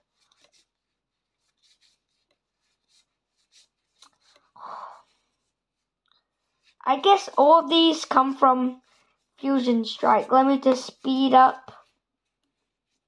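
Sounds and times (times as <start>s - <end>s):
cards rustling: 0.0s - 5.4s
trading cards rubbing and ticking: 0.1s - 13.0s.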